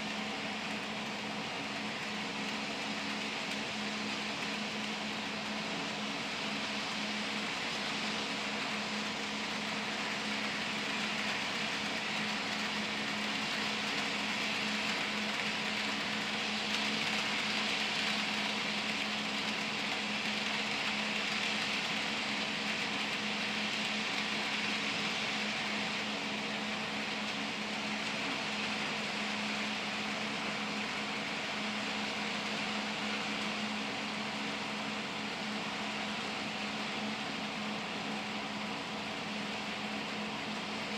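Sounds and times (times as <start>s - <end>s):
model train wheels whirring: 0.0s - 40.9s
steady hum and hiss: 0.0s - 40.9s.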